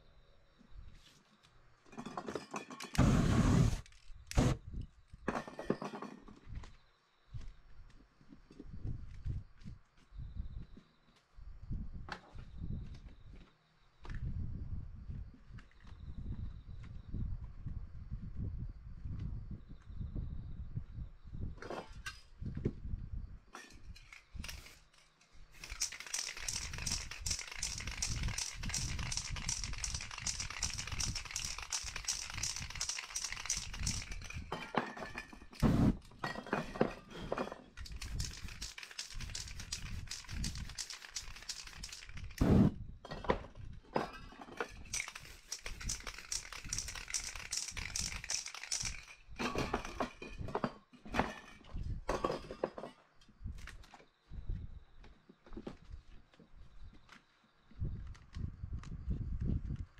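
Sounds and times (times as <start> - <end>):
spray paint can hissing: 25.6 - 34.4, 37.9 - 42.7, 44.9 - 49.1.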